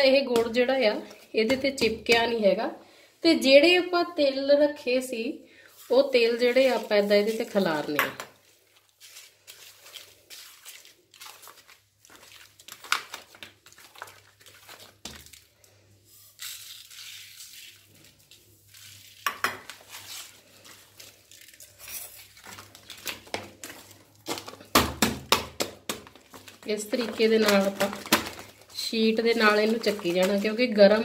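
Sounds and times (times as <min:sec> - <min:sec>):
plastic sheet crinkling: 0:05.7 - 0:31.0
seeds pattering into bowl: 0:25.8 - 0:31.0.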